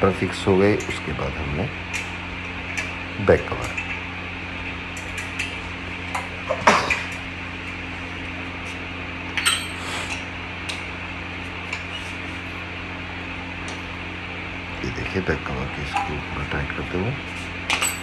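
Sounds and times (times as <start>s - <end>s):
steady low hum: 0.0s - 18.0s
metal clinks and knocks: 17.7s - 18.0s.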